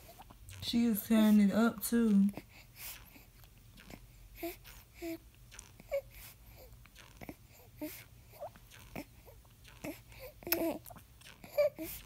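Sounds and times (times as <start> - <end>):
baby sucking and swallowing: 0.0 - 12.0
baby squeaks and grunts: 9.8 - 12.0.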